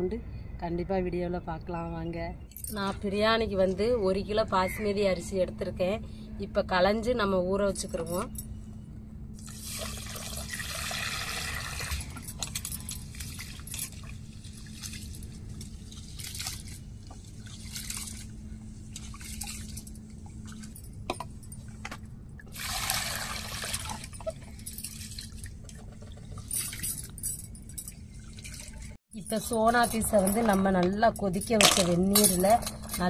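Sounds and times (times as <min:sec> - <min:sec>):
water pouring into bowl: 0:09.5 - 0:12.3, 0:22.5 - 0:24.4.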